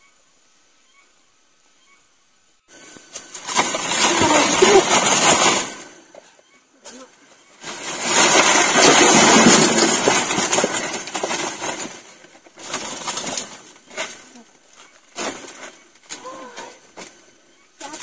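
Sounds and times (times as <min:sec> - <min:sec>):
bamboo baskets rustling and scraping: 0:02.7 - 0:18.0.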